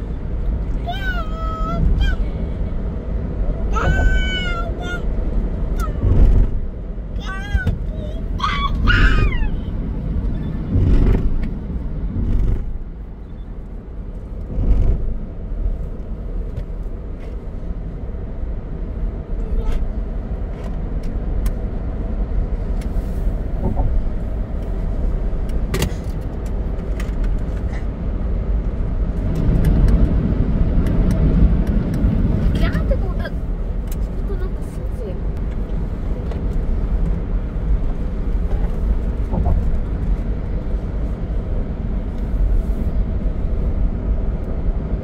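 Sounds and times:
car engine drone: 0.0 - 45.0
road and tyre noise: 0.0 - 45.0
low thumps: 6.0 - 6.7, 10.6 - 12.8.

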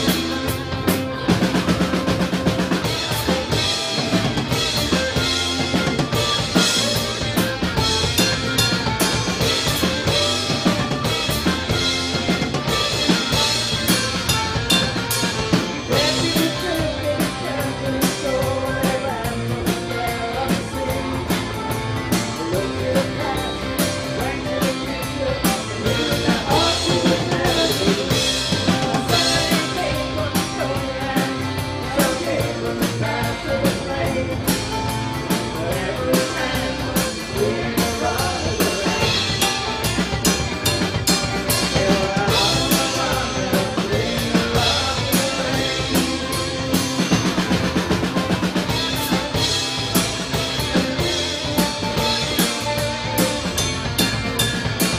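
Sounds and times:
drum kit beat: 0.0 - 54.9
rock band playing live: 0.0 - 54.9
person singing: 15.5 - 40.4, 41.3 - 47.7.

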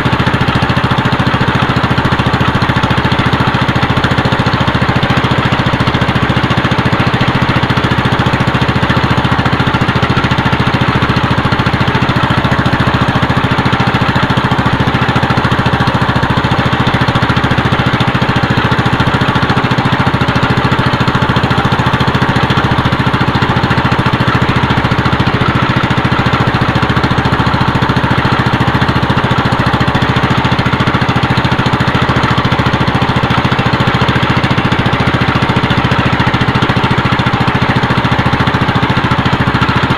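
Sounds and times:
boat engine droning: 0.0 - 39.9.

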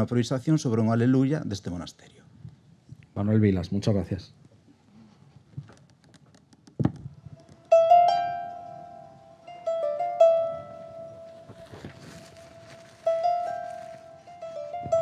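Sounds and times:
plucked string instrument notes: 7.1 - 15.0.

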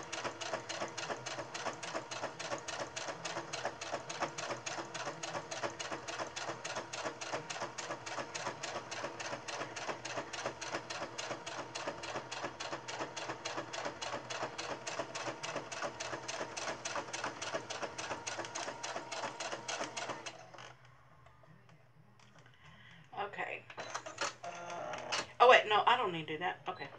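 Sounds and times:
sewing machine stitching: 0.0 - 20.8.

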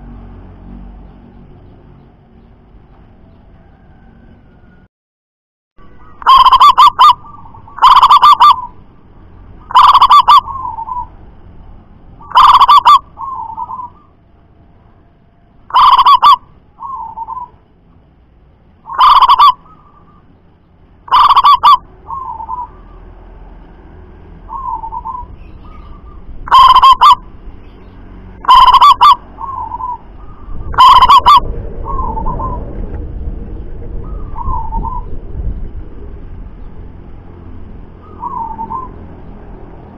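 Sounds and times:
low rumbling noise: 0.0 - 4.9, 5.8 - 39.9
dove calling sharp notes: 5.9 - 8.8, 9.6 - 11.2, 12.2 - 14.2, 15.7 - 17.6, 18.8 - 20.3, 21.0 - 23.0, 24.5 - 32.6, 34.0 - 35.1, 38.0 - 39.0
dove fluttering coo: 30.7 - 33.0.

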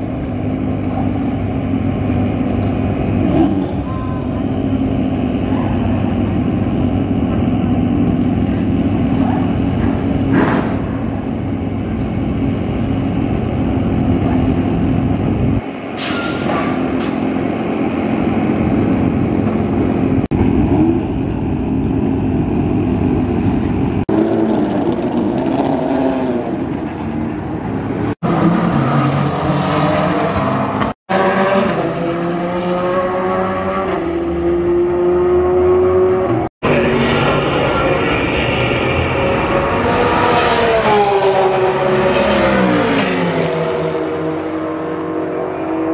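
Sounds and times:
race car engine running loudly: 0.0 - 15.8, 29.4 - 45.9
other race car engines: 0.0 - 45.9.

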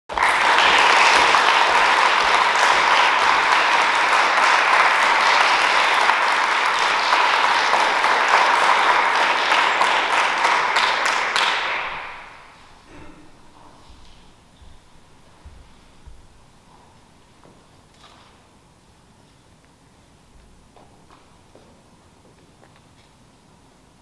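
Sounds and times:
audience applauding: 0.1 - 13.9.

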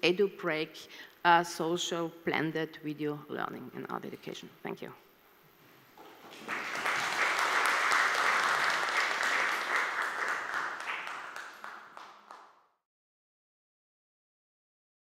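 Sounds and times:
audience applauding: 6.0 - 12.6.

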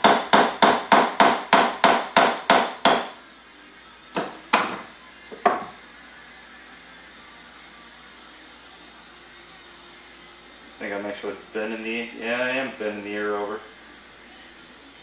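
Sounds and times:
hammer tapping metal punch: 4.1 - 5.7.

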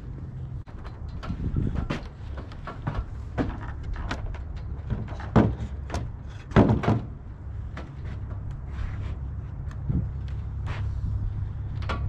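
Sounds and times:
irregular knocks and thuds: 0.8 - 8.5.

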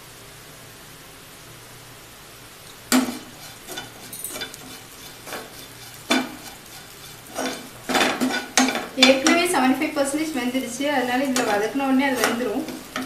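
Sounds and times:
faint frying sizzle: 0.0 - 13.0
spatula scraping frying pan: 2.9 - 13.0
spatula knocking against pan: 6.1 - 6.5, 7.4 - 9.4.

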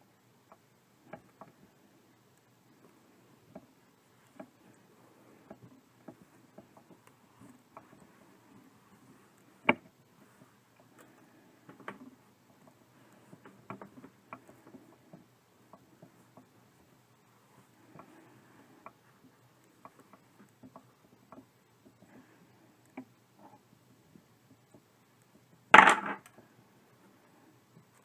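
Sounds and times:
needle and thread ticks: 0.0 - 25.7
soft fabric rustles: 1.0 - 25.6.

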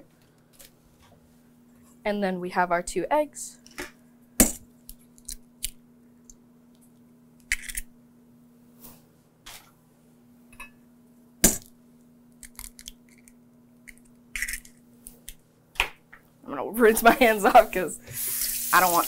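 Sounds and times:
eggs cracking on metal bowl: 12.4 - 15.4.

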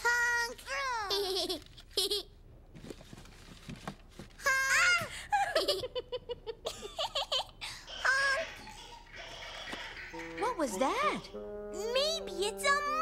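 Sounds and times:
children laughing and giggling: 0.9 - 2.4, 5.3 - 10.6.

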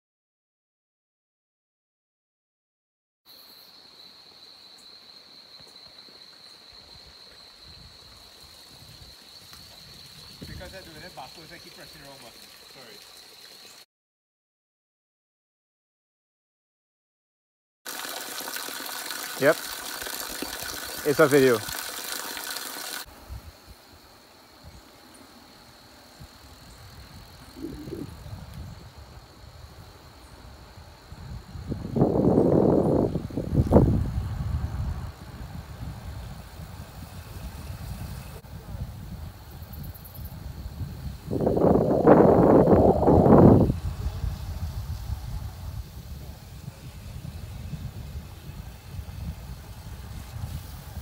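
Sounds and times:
insects calling: 3.3 - 13.9, 17.9 - 50.9
water streaming: 6.5 - 13.8, 17.9 - 23.1.

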